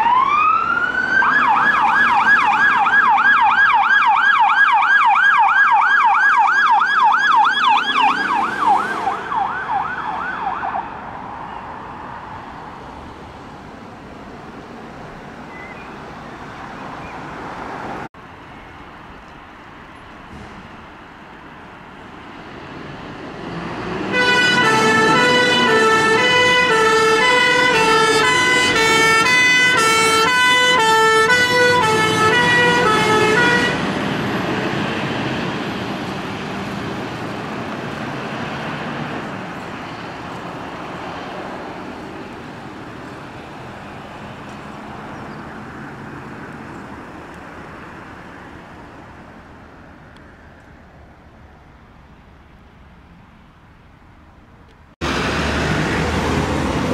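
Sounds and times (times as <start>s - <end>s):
fire engine two-tone siren: 0.0s - 12.8s, 24.0s - 36.8s
engine and road noise: 0.0s - 56.9s.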